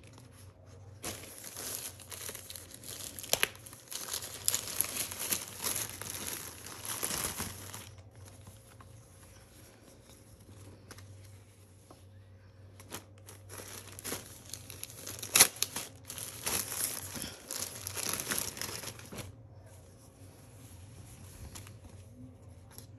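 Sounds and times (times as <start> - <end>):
plastic bags crinkling: 0.0 - 9.2, 12.7 - 19.4.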